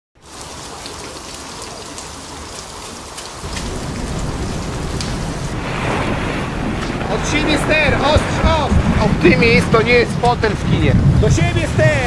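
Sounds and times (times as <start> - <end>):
rain falling on water: 0.2 - 12.0
low rumble: 3.4 - 12.0.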